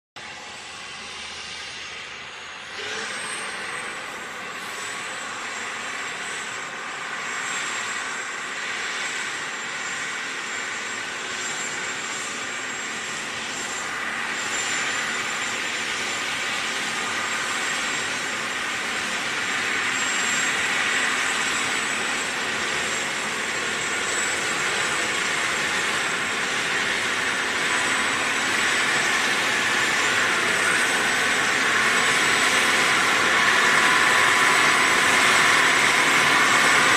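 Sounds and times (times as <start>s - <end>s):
tractor diesel engine running: 0.2s - 36.9s
thin high whine: 9.6s - 36.9s.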